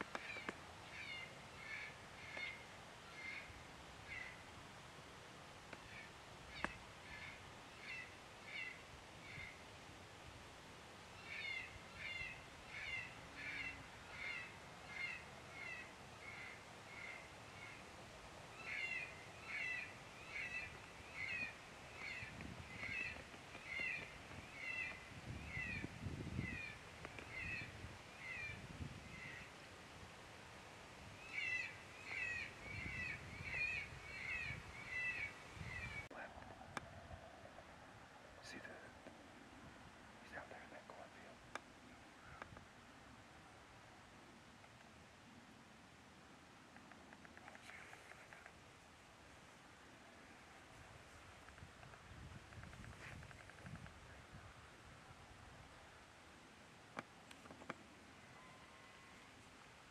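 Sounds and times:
wind rumble on microphone: 20.6 - 30.2, 32.4 - 37.8, 50.7 - 55.9.

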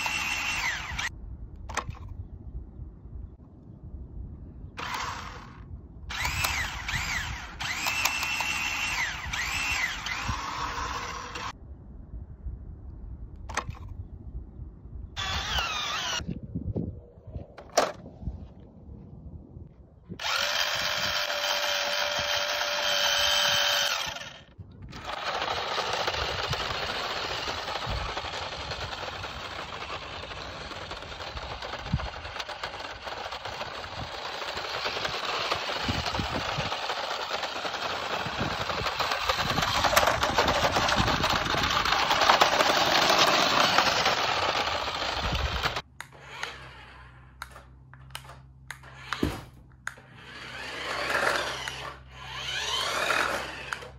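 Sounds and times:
toy electric motor whining: 0.0 - 1.1, 4.8 - 11.6, 15.2 - 16.3, 20.2 - 53.9
clicks: 47.4 - 50.1, 52.8 - 53.9.

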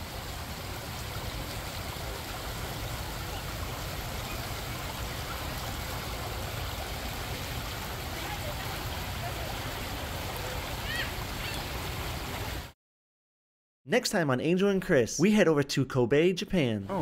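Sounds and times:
stream babbling over stones: 0.0 - 12.7.

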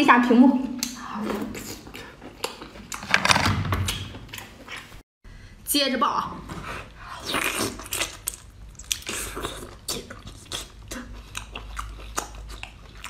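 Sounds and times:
person chewing with sharp clicks: 7.8 - 13.0.

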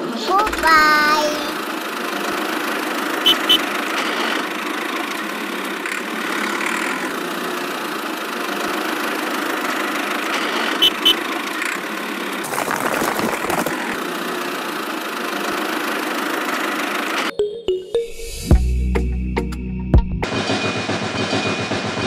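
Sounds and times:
toy tractor engine running: 0.0 - 17.3
rough rattle: 11.6 - 14.5.

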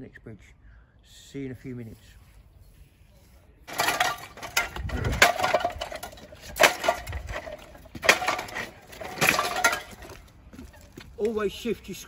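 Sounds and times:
scrap metal clanking: 3.7 - 10.3.

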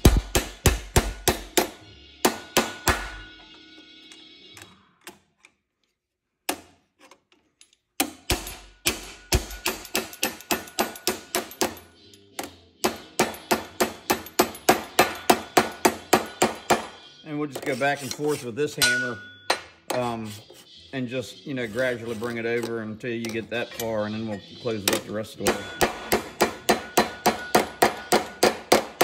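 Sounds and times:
small hammer tapping metal: 8.0 - 17.0, 24.8 - 29.0.

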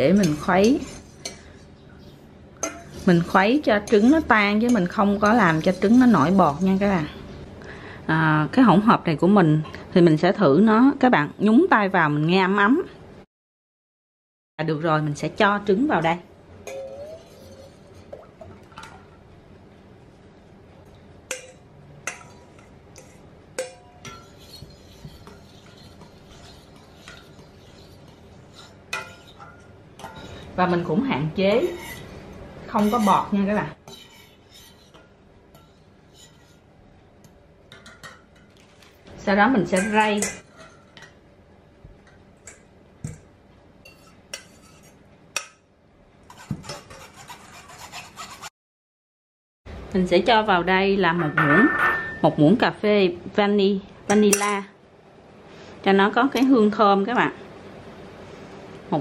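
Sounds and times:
metal spoon clinking bowl: 2.6 - 3.0, 16.6 - 17.7, 51.2 - 52.4
metal spoon clinking on pot: 2.6 - 3.0, 21.3 - 22.4, 51.2 - 52.3.

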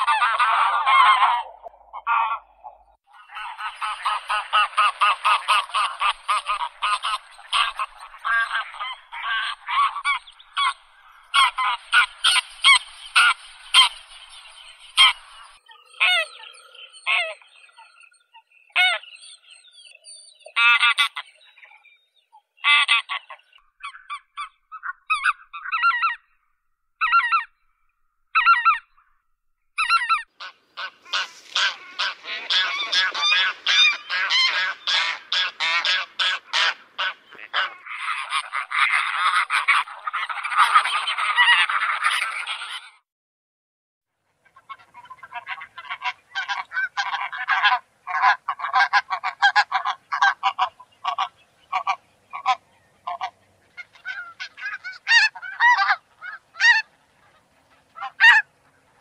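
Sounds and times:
geese honking: 0.0 - 16.3, 29.8 - 42.9, 44.4 - 59.0.

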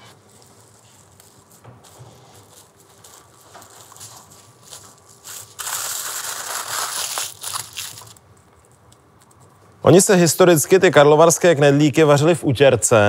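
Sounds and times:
aluminium foil crinkling: 0.1 - 9.5.

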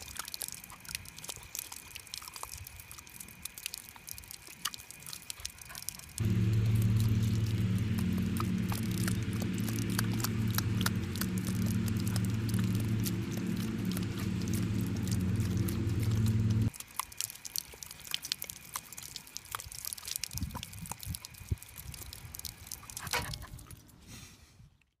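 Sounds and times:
water jet splashing: 4.9 - 16.7
low motor hum: 6.2 - 16.7.

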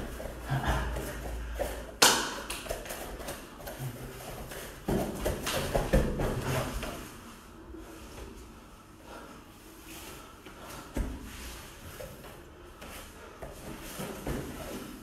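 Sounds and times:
bare feet shuffling on mats: 0.0 - 8.5, 9.8 - 15.0
hands slapping: 2.0 - 3.5.

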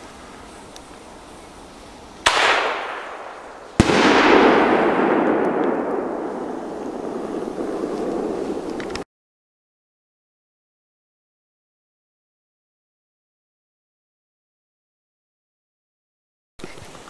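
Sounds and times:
firework launch with hissing tail: 0.0 - 9.0
firework shell bursting: 2.2 - 9.0
reverberating rumble: 2.9 - 9.0.

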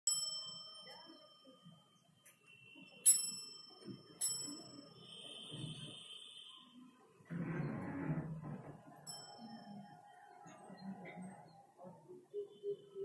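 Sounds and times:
small bell dings: 0.1 - 5.4, 9.1 - 10.0.

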